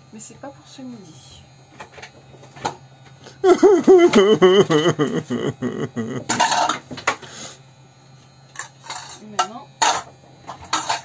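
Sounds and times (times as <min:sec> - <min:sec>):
person laughing: 0:03.4 - 0:06.5.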